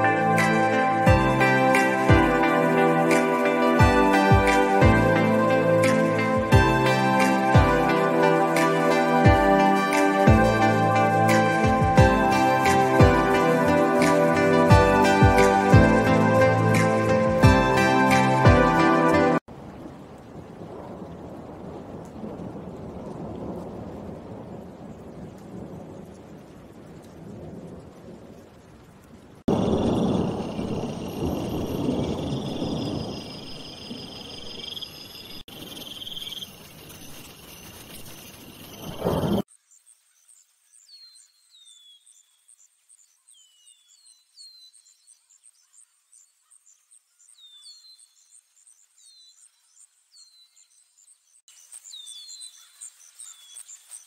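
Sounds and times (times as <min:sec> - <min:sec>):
steady rain falling: 0:00.0 - 0:39.5
rolling thunder rumble: 0:19.5 - 0:34.8, 0:38.6 - 0:39.5
high insect trill: 0:29.5 - 0:40.3.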